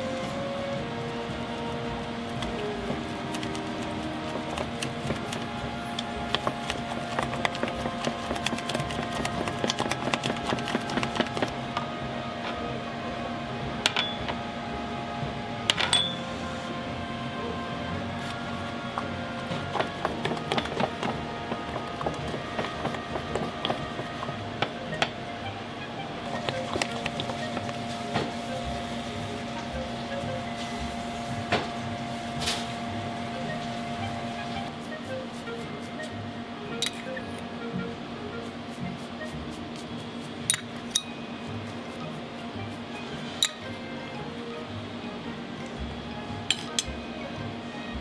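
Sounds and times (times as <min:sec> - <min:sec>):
steady hum: 0:00.0 - 0:48.0.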